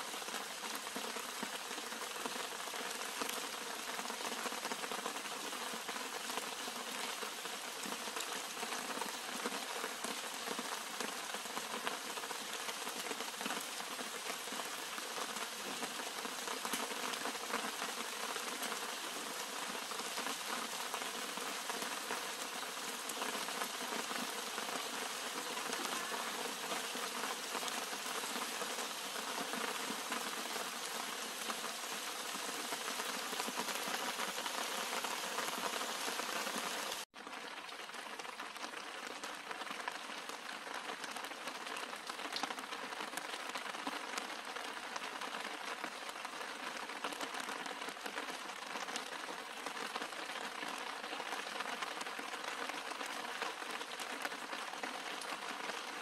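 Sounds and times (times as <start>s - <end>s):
rain pattering on leaves: 0.0s - 56.0s.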